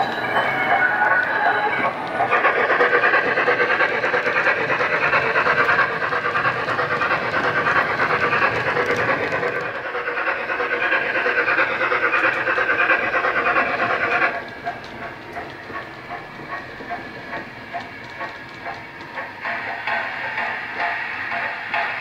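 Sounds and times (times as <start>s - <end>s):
model steam locomotive chuffs: 0.0s - 22.0s.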